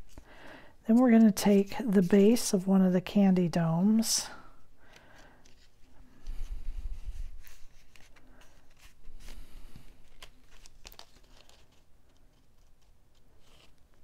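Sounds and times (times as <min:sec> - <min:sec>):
paper rustling and scraping: 0:05.4 - 0:14.0.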